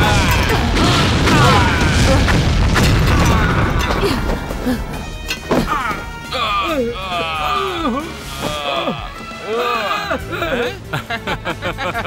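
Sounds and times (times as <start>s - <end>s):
rumble of explosions: 0.0s - 5.2s
men crying out: 0.0s - 11.0s.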